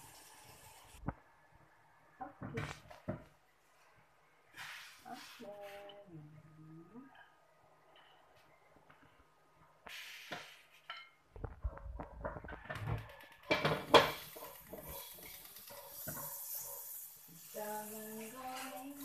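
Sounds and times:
steady hiss: 0:09.8 - 0:10.9, 0:13.6 - 0:19.0
wok and metal utensils clattering: 0:12.1 - 0:17.0.

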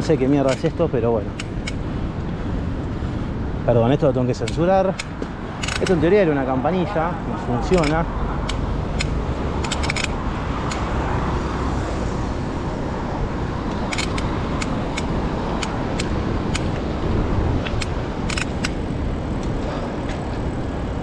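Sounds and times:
wind and bike road noise: 0:00.0 - 0:21.0
sharp clicks and rattles: 0:04.4 - 0:06.2, 0:07.6 - 0:10.9, 0:13.7 - 0:16.9, 0:17.6 - 0:20.3.

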